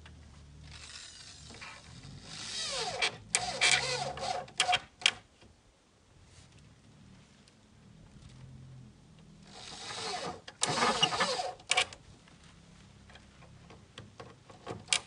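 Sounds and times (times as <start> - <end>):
cordless drill whirring: 0.7 - 4.8, 9.5 - 11.7.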